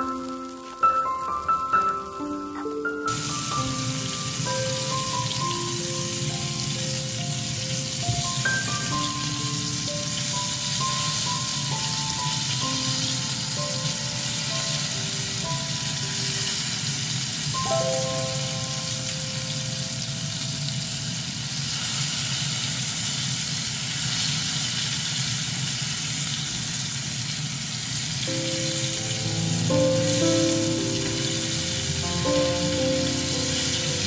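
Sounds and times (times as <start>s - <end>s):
background music of held notes: 0.0s - 21.0s, 28.3s - 34.0s
fish sizzling in hot oil: 0.0s - 34.0s.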